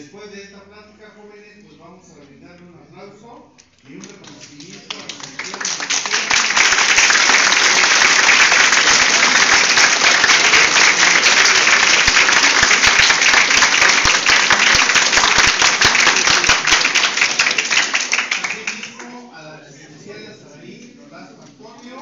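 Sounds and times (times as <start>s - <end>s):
audience applauding: 4.2s - 19.1s.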